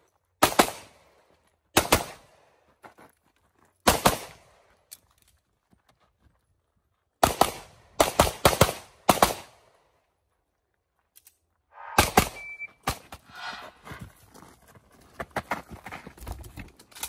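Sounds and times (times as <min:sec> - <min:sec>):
pistol shots: 0:11.8 - 0:12.4.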